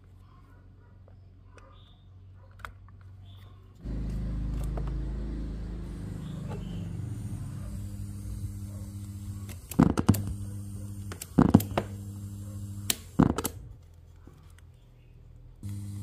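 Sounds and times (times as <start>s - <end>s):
mains hum: 5.2s - 16.0s.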